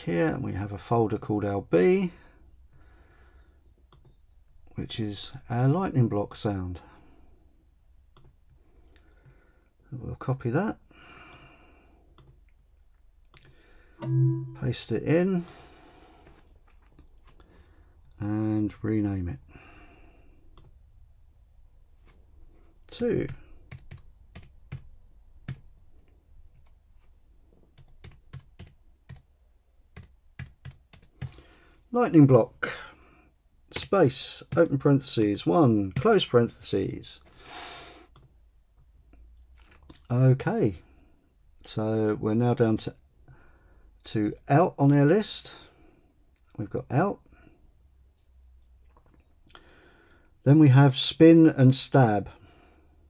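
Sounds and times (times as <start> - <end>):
faint breath: 2.2 - 3.7, 8.6 - 9.8, 10.9 - 12.1, 13.4 - 14.0, 17.4 - 18.0, 19.5 - 20.5, 31.3 - 31.9, 43.3 - 44.0, 49.5 - 50.4
computer keyboard typing: 23.2 - 25.7, 27.8 - 29.3, 29.9 - 31.4.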